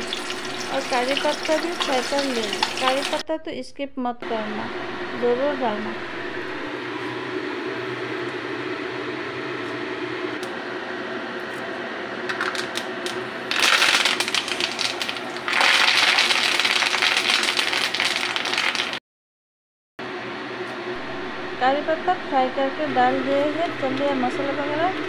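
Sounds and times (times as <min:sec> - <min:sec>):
hot oil frying in a pan: 0:00.0 - 0:03.2, 0:13.5 - 0:19.0.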